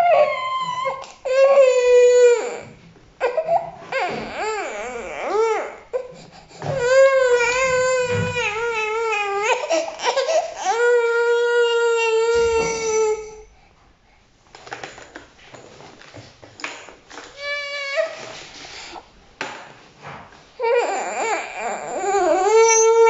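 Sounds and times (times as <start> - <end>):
baby crying: 0.0 - 13.5, 20.6 - 23.0.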